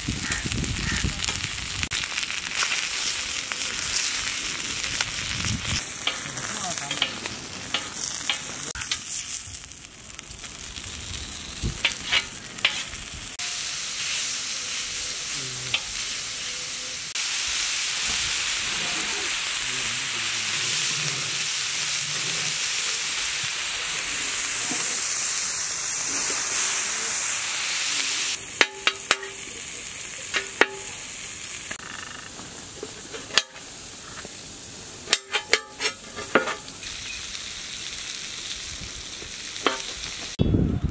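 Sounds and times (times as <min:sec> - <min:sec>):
chicken sizzling on griddle: 0:00.0 - 0:40.9
metal spatula scraping: 0:06.0 - 0:09.4, 0:11.8 - 0:13.0, 0:35.1 - 0:36.7.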